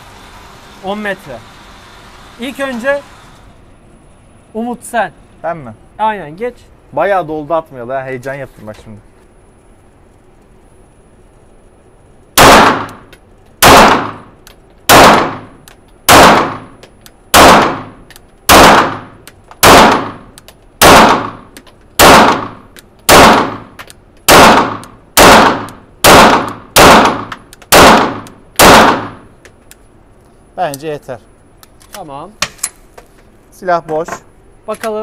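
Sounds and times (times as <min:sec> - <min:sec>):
pistol shots ringing indoors: 0:12.4 - 0:14.3, 0:14.9 - 0:16.7, 0:17.3 - 0:21.4, 0:22.0 - 0:23.7, 0:24.3 - 0:29.3.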